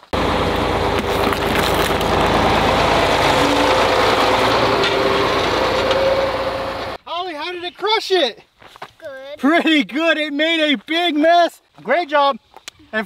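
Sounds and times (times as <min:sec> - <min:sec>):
tractor engine running: 0:00.0 - 0:07.0.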